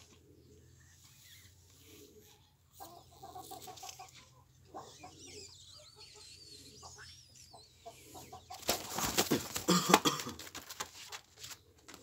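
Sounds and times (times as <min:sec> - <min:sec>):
hen clucking: 0:02.0 - 0:09.6.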